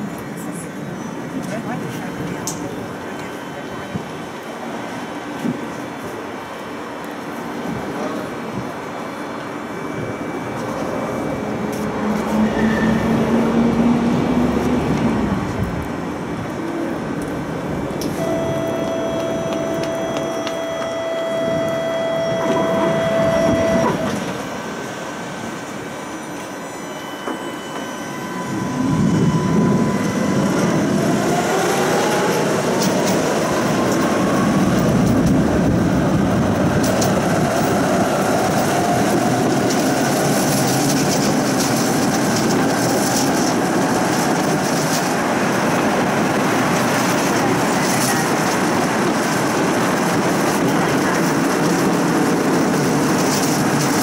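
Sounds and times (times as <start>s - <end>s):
tram traction motors whining: 0.0s - 54.0s
wheels rolling on rails: 10.5s - 54.0s
rail clacks: 11.6s - 54.0s
steady tone: 17.0s - 32.8s.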